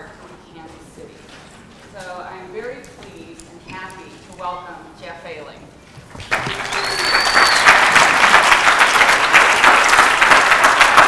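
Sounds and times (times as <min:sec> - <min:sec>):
audience applauding: 0:06.2 - 0:11.0
high whistle-like tone: 0:06.7 - 0:07.8.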